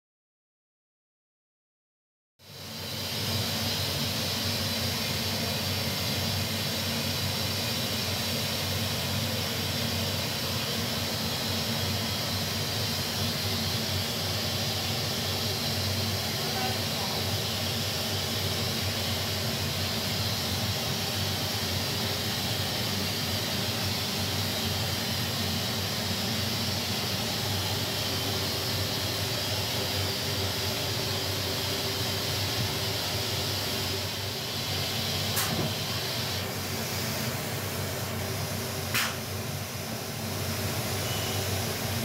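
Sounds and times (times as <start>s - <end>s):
grinding machine hum and hiss: 2.4s - 42.0s
sharp machine click: 35.3s - 35.6s, 38.9s - 39.2s.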